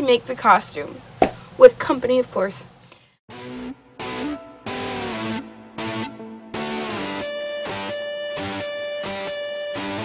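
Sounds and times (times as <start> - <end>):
background music with strummed guitar: 3.3 - 10.0.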